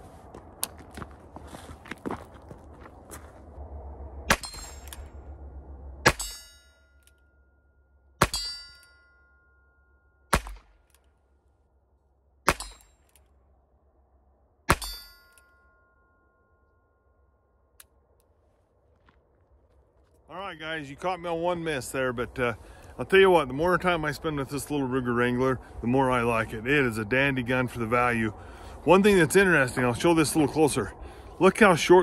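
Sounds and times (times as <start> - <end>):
bullet hitting steel target: 4.3 - 5.2, 6.0 - 7.2, 8.2 - 9.3, 10.3 - 11.0, 12.4 - 13.2, 14.7 - 15.7.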